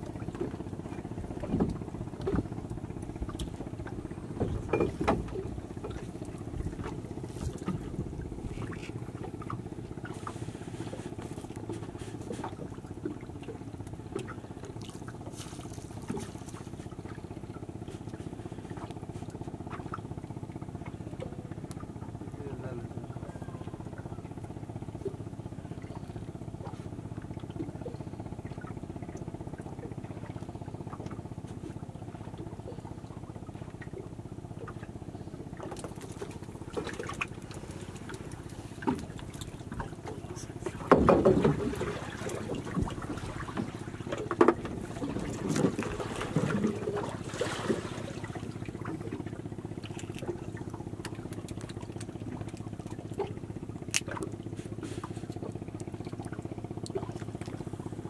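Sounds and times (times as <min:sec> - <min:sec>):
boat engine running: 0:00.0 - 0:58.0
wet fishing net rustling: 0:14.9 - 0:16.7.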